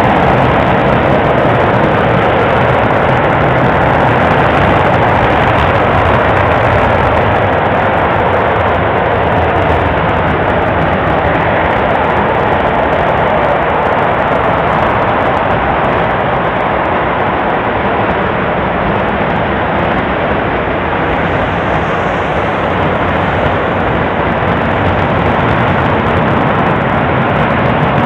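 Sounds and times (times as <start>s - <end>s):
rocket engine firing: 0.0s - 28.0s.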